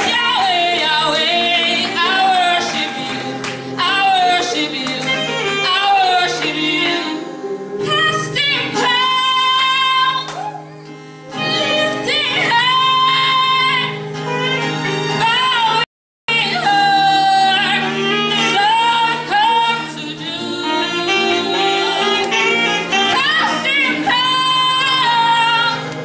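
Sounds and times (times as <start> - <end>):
woman singing: 0.0 - 10.6, 11.3 - 26.0
acoustic guitar: 0.0 - 26.0.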